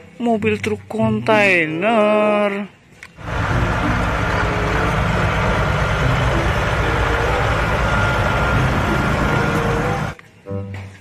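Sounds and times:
diesel truck engine rumbling: 3.2s - 10.2s.

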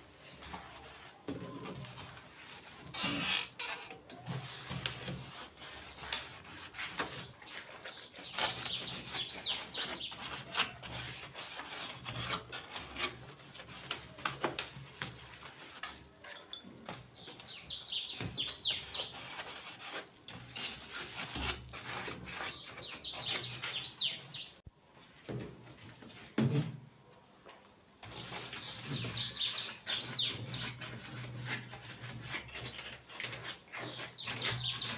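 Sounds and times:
birds chirping: 7.9s - 10.2s, 17.1s - 19.2s, 22.5s - 24.6s, 28.6s - 30.7s, 33.8s - 34.9s.

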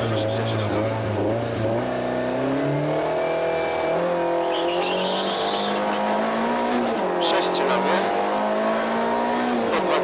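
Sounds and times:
rally car engine accelerating: 0.0s - 10.0s
tyre squeal: 4.4s - 5.9s.

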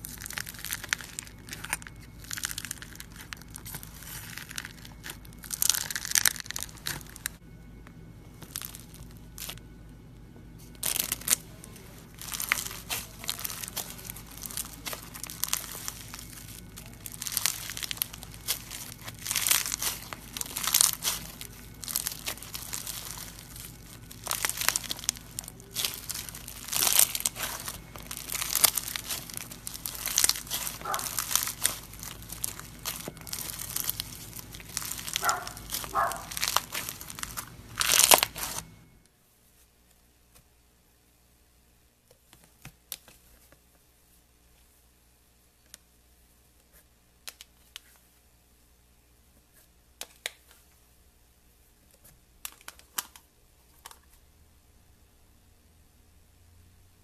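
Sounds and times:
foam beads crunching and crackling: 0.0s - 7.4s, 8.3s - 9.6s, 10.6s - 38.7s.

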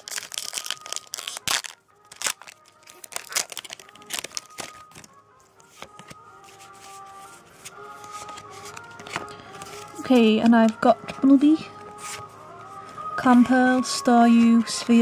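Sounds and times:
foil wrapper tearing and crinkling: 0.0s - 5.1s
cards sliding out of wrapper: 0.0s - 6.7s, 7.6s - 10.0s
faint background music: 0.0s - 15.0s.

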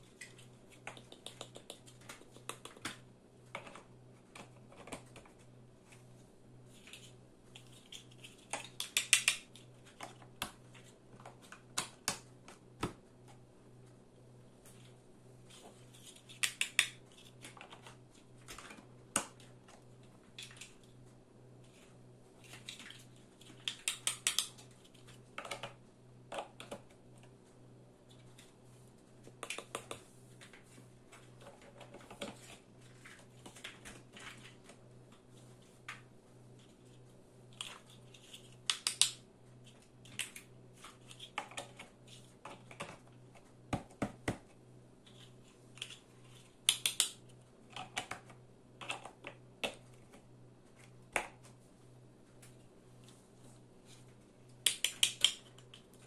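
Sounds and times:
plastic building blocks clicking: 7.6s - 10.2s, 22.6s - 24.6s, 46.7s - 49.8s, 54.7s - 55.9s.

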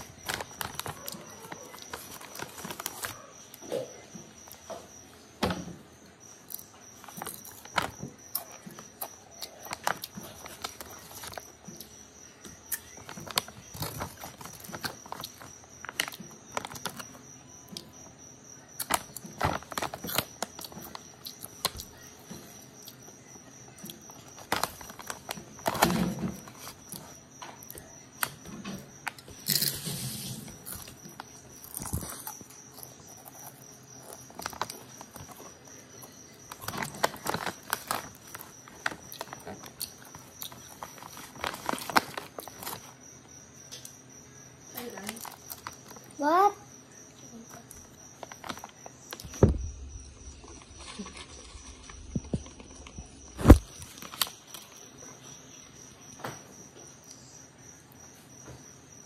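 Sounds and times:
chips being chewed: 0.0s - 3.2s, 12.7s - 18.0s, 18.7s - 23.1s, 29.0s - 42.9s, 50.2s - 54.7s.

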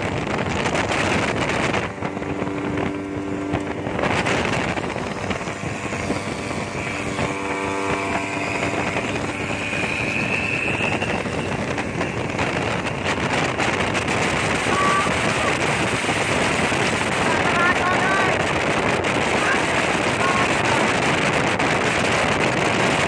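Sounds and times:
outboard motor running hard: 0.0s - 23.0s
wind on microphone: 0.0s - 23.0s
high whistle: 8.7s - 12.0s.

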